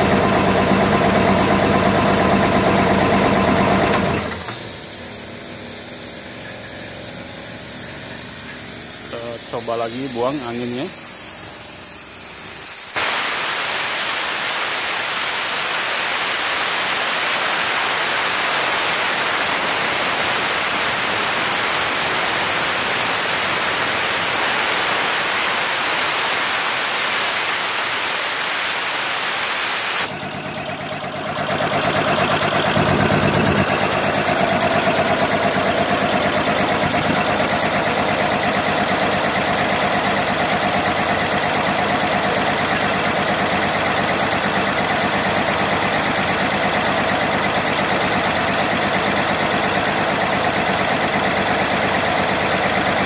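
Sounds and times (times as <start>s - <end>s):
compressor pump pulsing: 0.0s - 53.0s
contactor click: 0.4s - 53.0s
compressed air hissing: 4.2s - 30.2s.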